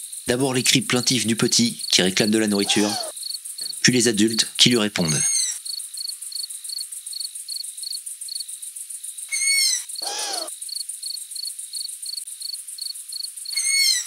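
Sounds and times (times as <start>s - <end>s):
crickets chirping: 0.0s - 14.0s
adult owl call: 1.7s - 3.8s, 5.1s - 5.6s, 9.3s - 10.5s, 13.5s - 14.0s
young owl begging squeak: 1.8s - 3.1s, 5.2s - 5.6s, 9.3s - 10.5s, 13.6s - 14.0s.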